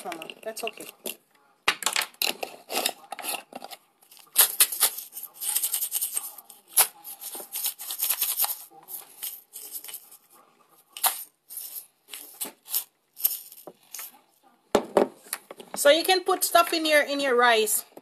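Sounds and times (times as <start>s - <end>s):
rice rattling in plastic bottle: 3.2s - 10.2s.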